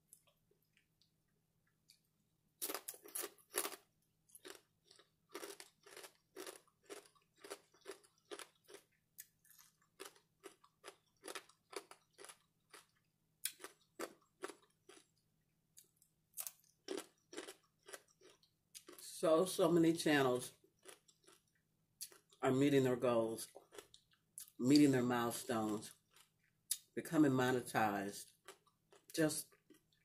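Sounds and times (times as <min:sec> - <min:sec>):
crunchy chewing of bacon: 0:02.6 - 0:19.0, 0:20.7 - 0:22.4, 0:23.5 - 0:24.5, 0:25.7 - 0:26.8, 0:28.3 - 0:30.0.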